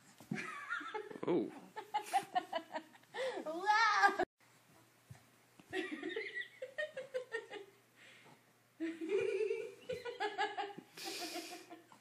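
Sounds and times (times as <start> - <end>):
woman laughing: 5.7 - 7.8.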